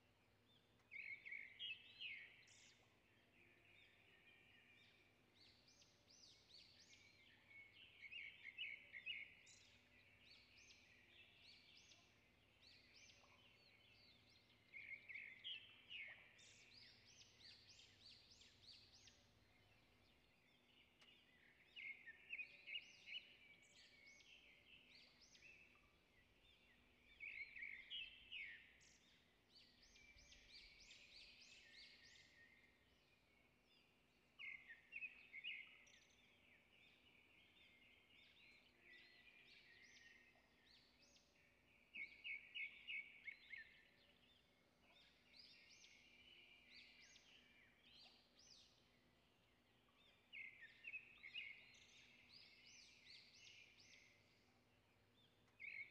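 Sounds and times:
faint bird chirping: 0.0 - 55.9.

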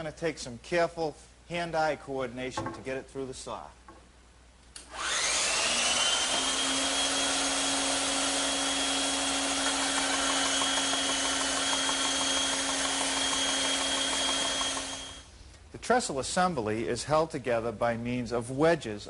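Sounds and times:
bandsaw cutting wood: 4.9 - 15.3.

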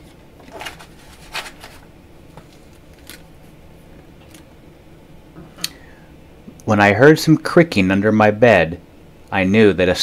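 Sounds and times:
book page turning: 0.0 - 3.3
handling rustles: 0.0 - 3.4.

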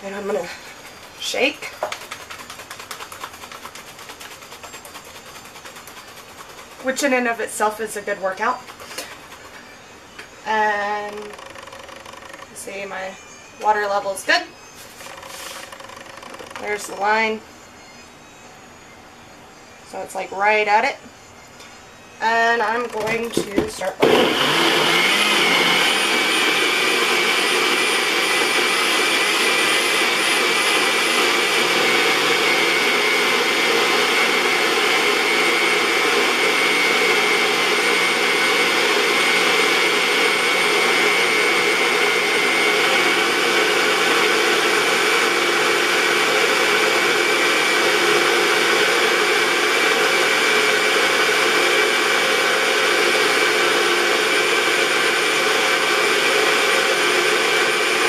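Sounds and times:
blender motor whirring: 10.5 - 14.1, 15.0 - 17.0, 22.7 - 58.0.

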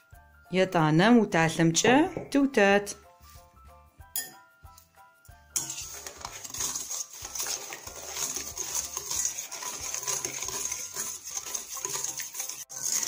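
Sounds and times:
whisk rattling in metal bowl: 5.5 - 13.0.

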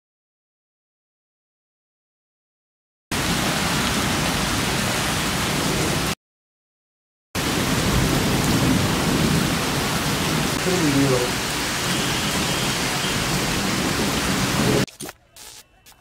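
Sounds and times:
heavy rain on pavement: 3.1 - 6.2, 7.4 - 15.6.

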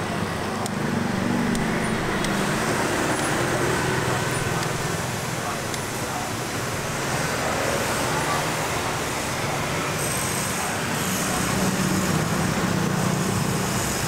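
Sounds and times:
street traffic noise: 0.0 - 14.0
vehicle engine hum: 0.0 - 14.0.

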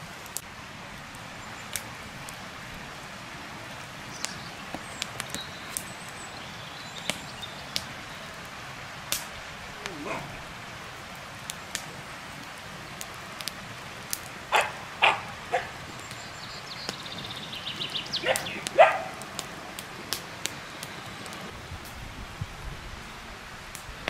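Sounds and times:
dog barking: 9.9 - 10.3, 14.5 - 15.8, 18.2 - 19.2.

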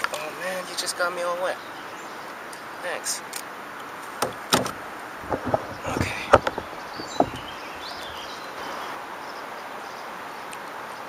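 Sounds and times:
fish knocking in a canoe: 4.2 - 8.2.

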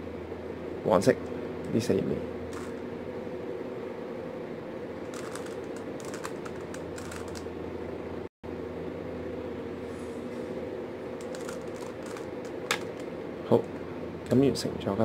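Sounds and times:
steady low hum: 0.0 - 15.0
puzzle cube plastic clicks: 5.1 - 7.5, 11.2 - 13.1.

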